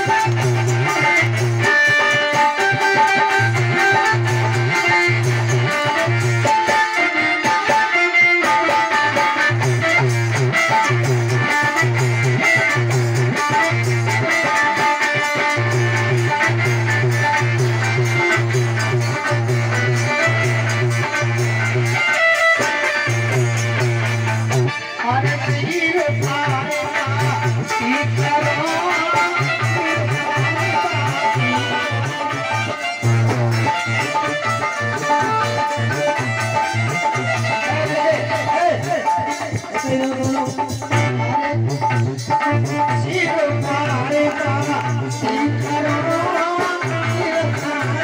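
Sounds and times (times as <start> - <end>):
instrumental melody: 0.0 - 48.0
rhythmic drum beat: 0.0 - 48.0
repeating bass pattern: 15.3 - 22.0, 25.4 - 46.2.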